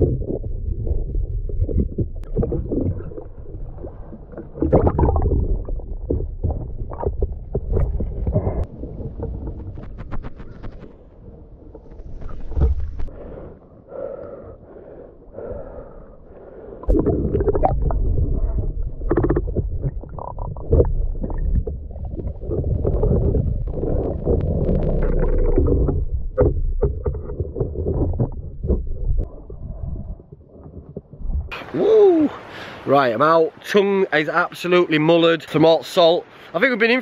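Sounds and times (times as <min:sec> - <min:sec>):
underwater knocks: 0:00.0 - 0:03.3, 0:04.5 - 0:10.5, 0:16.9 - 0:29.3
muffled underwater rumbling: 0:00.0 - 0:14.1, 0:15.2 - 0:31.8.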